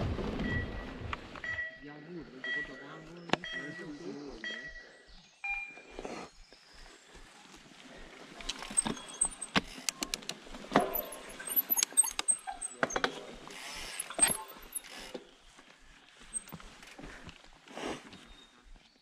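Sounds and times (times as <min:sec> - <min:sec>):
bike clicks and rattles: 0:08.1 - 0:18.3
tyres hissing on dirt: 0:13.2 - 0:18.6.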